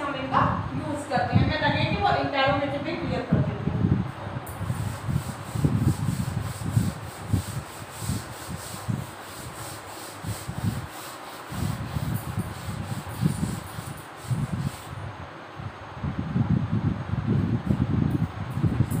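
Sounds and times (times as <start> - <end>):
duster rubbing on chalkboard: 4.7 - 15.0.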